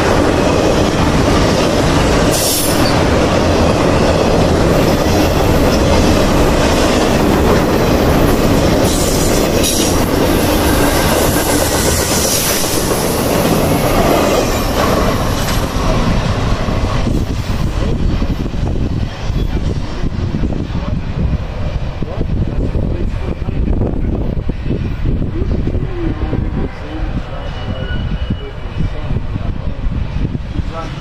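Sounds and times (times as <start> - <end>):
wheels clacking over rail joints: 0.0 - 17.3
freight train cars rolling past: 0.0 - 31.0.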